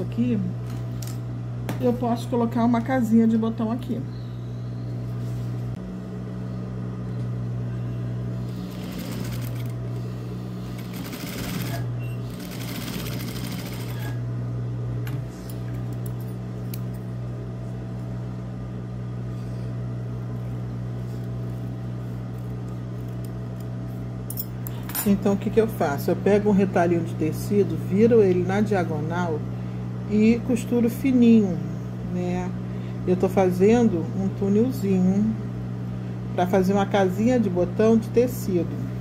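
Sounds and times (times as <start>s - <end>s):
sewing machine motor humming: 8.4s - 14.2s.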